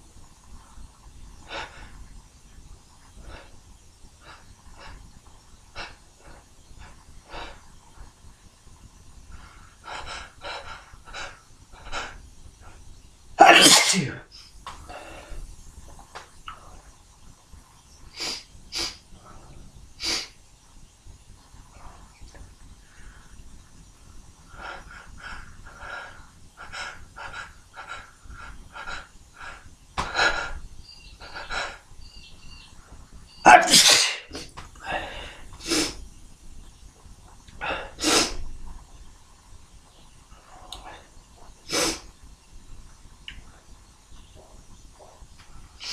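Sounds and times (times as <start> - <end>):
man breathing noisily: 9.3 - 12.8, 14.3 - 15.5, 24.5 - 32.0, 34.2 - 36.0
person sneezing: 13.4 - 14.2, 33.5 - 34.5.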